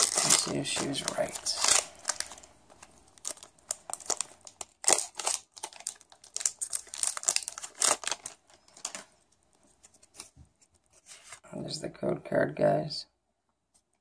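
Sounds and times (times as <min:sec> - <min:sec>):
foil wrapper crinkling: 0:00.0 - 0:09.1.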